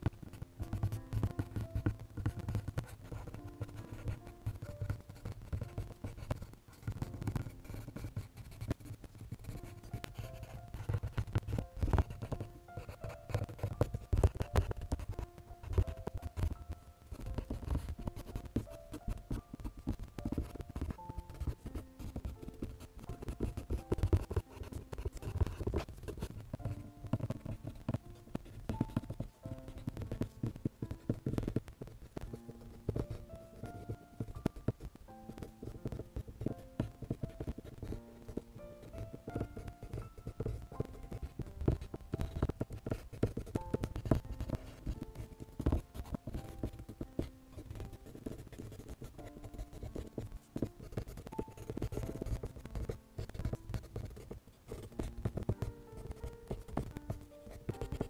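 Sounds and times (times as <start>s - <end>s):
background music of held notes: 0.0s - 58.0s
pencil scratching on paper: 0.0s - 58.0s.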